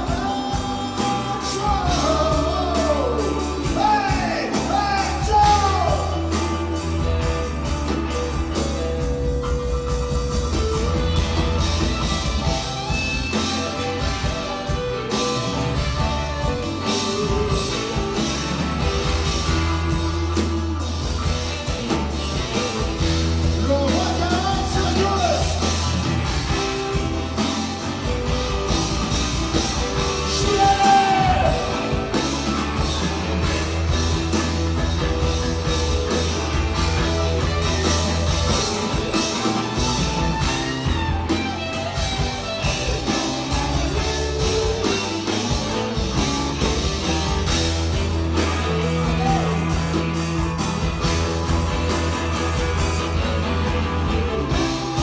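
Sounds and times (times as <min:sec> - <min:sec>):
person singing: 0:00.0 - 0:06.4, 0:30.2 - 0:32.2
bass line: 0:00.0 - 0:55.0
electric guitar: 0:00.0 - 0:55.0.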